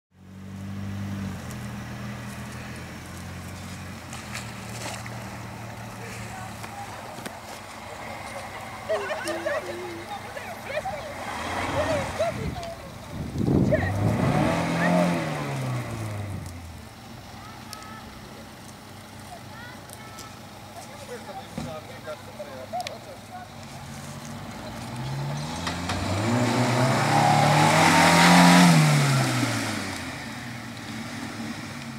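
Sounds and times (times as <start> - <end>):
car engine idling: 0.2 - 28.0
faint clicks and crackles: 16.4 - 21.1.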